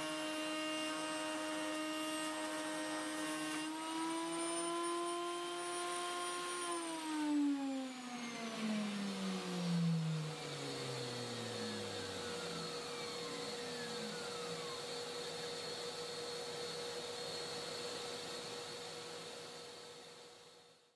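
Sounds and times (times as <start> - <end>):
wood router spinning down: 0.0 - 20.2
dust extractor hiss and hum: 8.2 - 20.5.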